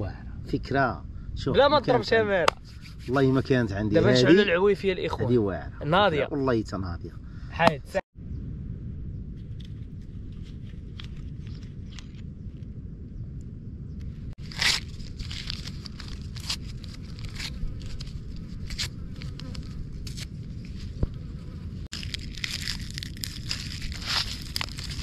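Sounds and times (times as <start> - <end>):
steady low rumble: 0.0 - 25.0
wood fire crackling and popping: 21.9 - 25.0.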